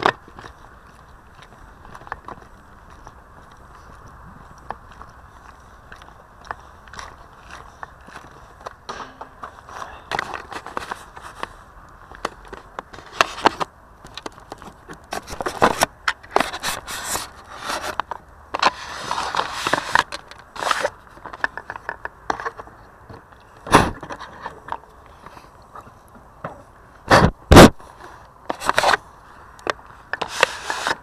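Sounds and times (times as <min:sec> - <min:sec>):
crackling scraping noise: 0:00.0 - 0:26.1, 0:26.7 - 0:31.0
heavy knock: 0:08.9 - 0:09.7.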